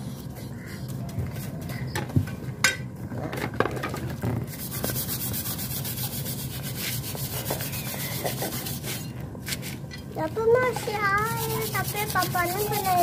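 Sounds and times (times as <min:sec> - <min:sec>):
scrubbing engine parts: 0:03.6 - 0:13.0.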